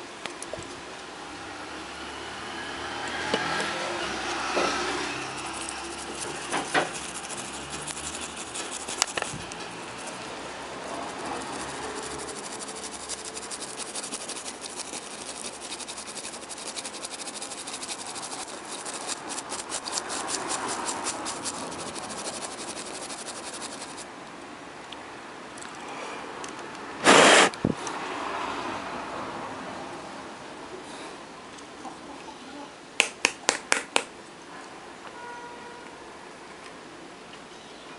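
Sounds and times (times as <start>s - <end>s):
rapid scratchy ticks: 4.2s - 24.1s.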